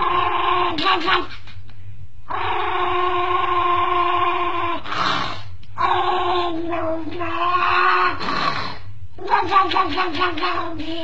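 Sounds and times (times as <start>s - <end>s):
dog howling: 5.8s - 8.3s.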